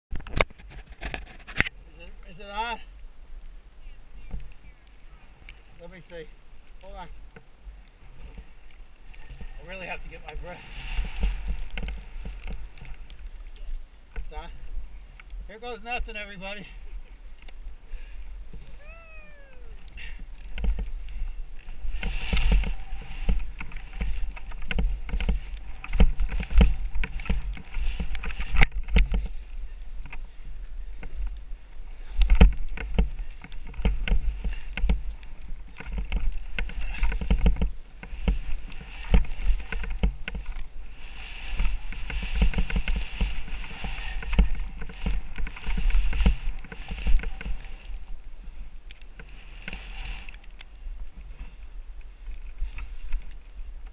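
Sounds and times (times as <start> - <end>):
small clicks: 3.4 - 14.3
skis scraping on snow: 5.1 - 53.9.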